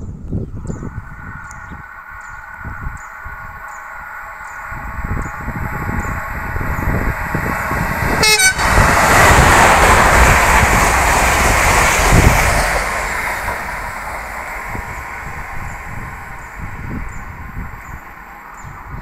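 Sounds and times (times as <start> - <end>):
train rushing past: 0.0 - 19.0
wind buffeting microphone: 0.0 - 19.0
train horn blast: 8.0 - 8.9.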